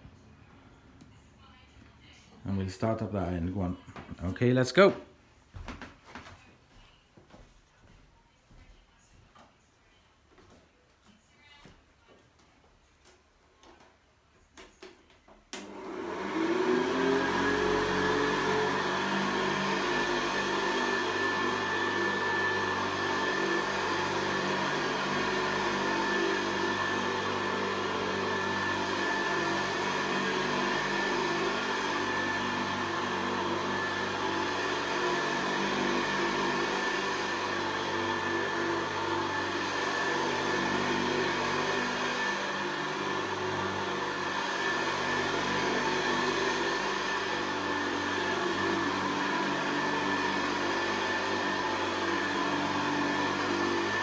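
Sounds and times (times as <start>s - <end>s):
vacuum cleaner motor whining: 15.6s - 54.0s.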